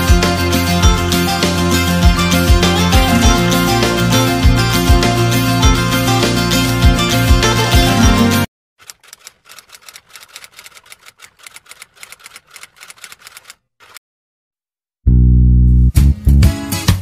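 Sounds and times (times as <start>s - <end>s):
light rapid clicks: 8.8s - 14.0s.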